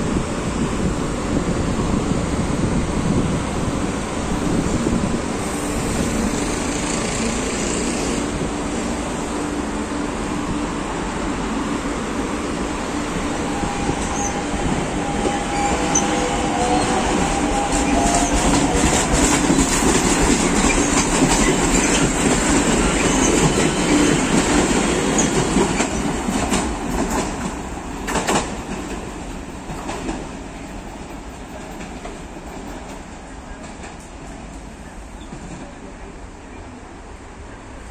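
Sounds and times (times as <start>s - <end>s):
train rumble: 0.0s - 37.9s
train wheels clacking on rails: 5.4s - 8.4s, 13.4s - 35.9s.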